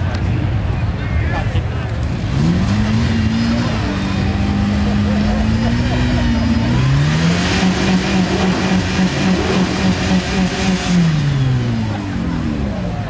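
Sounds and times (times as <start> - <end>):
engine revving under load: 2.0 - 13.0.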